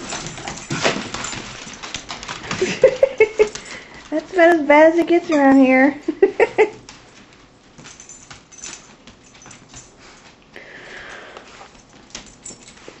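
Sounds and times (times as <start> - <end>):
small clicks and rustles: 0.0 - 5.7, 6.4 - 10.6, 11.3 - 13.0
dog sniffing and breathing: 9.5 - 13.0
breathy hiss: 10.0 - 11.8.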